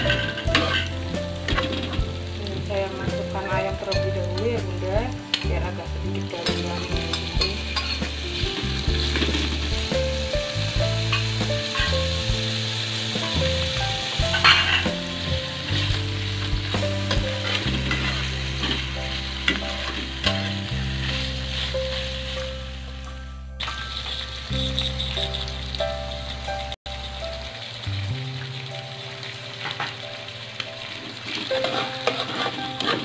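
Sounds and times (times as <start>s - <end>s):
hot oil sizzling in a wok: 0.0s - 33.0s
spatula scraping and tapping pan: 14.3s - 15.0s, 31.3s - 33.0s.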